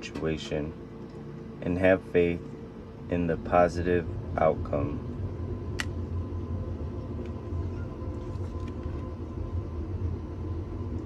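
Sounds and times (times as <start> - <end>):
low room hum and rumble: 0.0 - 11.0.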